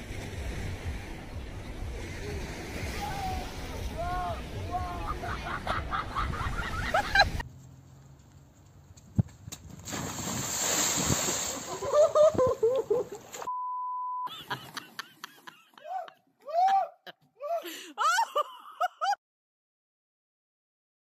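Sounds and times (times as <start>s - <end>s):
excited voices: 2.9s - 5.8s
loud splash of muddy water: 9.8s - 12.0s.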